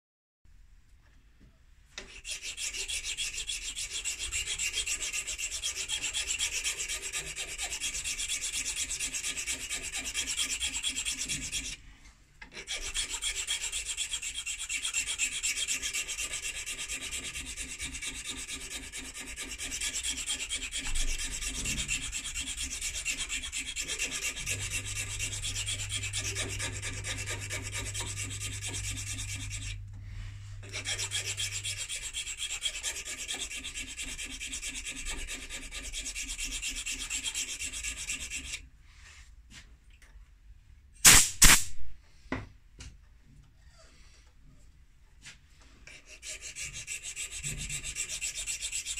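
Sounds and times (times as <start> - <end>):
hand file rasping on metal: 2.0 - 11.8, 12.4 - 29.9, 30.5 - 38.6, 45.2 - 48.9.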